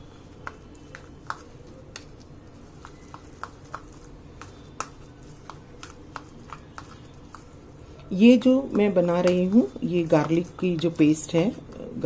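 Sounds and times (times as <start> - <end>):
faint steady hum: 0.0 - 12.0
spoon scraping plastic bowl: 2.6 - 7.6.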